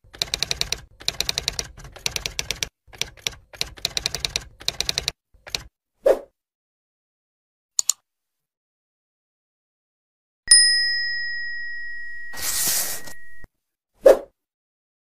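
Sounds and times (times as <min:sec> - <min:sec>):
mouse double click: 0:07.8 - 0:08.0
notification bell ding: 0:10.5 - 0:13.5.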